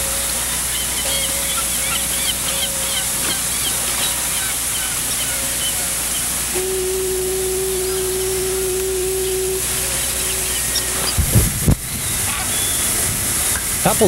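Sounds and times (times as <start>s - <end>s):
rushing hiss of wind or water: 0.0s - 14.0s
steady humming tone: 0.0s - 14.0s.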